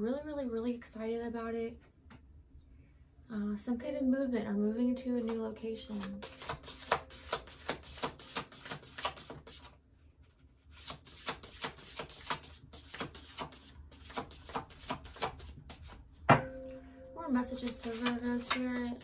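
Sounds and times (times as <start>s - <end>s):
cards shuffled by hand: 6.0s - 16.0s, 17.6s - 18.8s.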